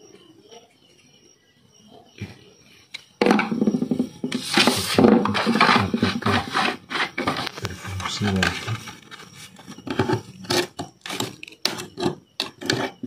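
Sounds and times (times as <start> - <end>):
cutter scraping laminate sheet: 4.4 - 13.0.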